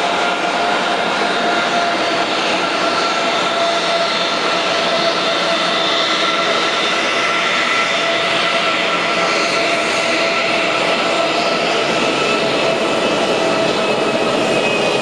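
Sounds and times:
jet engines whining: 0.0 - 15.0.

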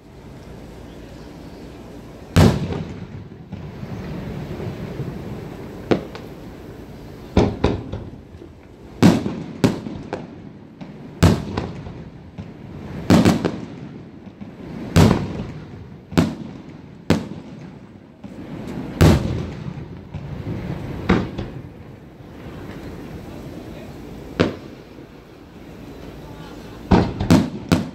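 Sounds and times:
fireworks booming: 1.7 - 27.9.

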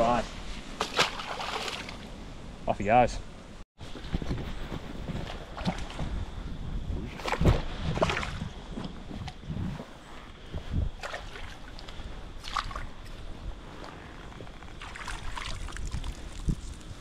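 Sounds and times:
fish splashing at water surface: 0.8 - 2.0
wind rumble on microphone: 3.3 - 17.0.

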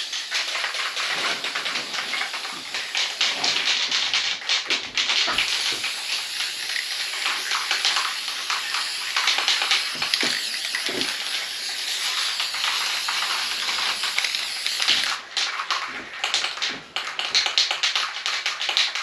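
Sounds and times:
aerosol spray can hissing: 0.2 - 3.5, 5.3 - 15.2.

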